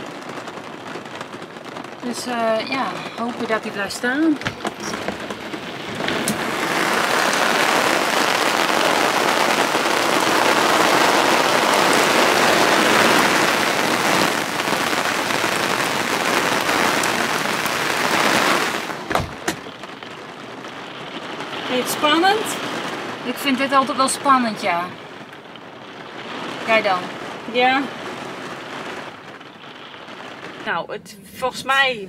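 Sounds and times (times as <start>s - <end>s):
heavy rain on awning: 0.0s - 32.0s
sharp knocks: 4.4s - 6.5s, 19.1s - 19.8s.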